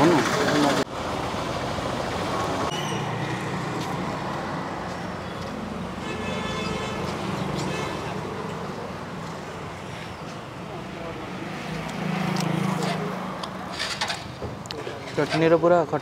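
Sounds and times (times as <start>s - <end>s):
street traffic engines: 0.0s - 16.0s
vehicle horn: 5.9s - 8.2s.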